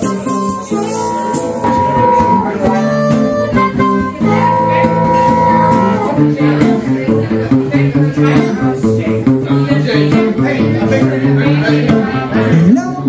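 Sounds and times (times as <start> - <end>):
harmonica playing: 0.0 - 7.3
strummed acoustic guitar: 0.0 - 13.0.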